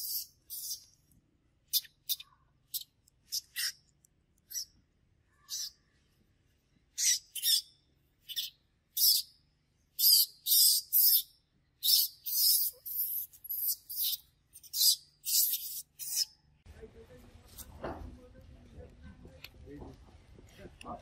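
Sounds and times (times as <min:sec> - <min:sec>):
infant monkey screaming: 0:05.4 - 0:05.8.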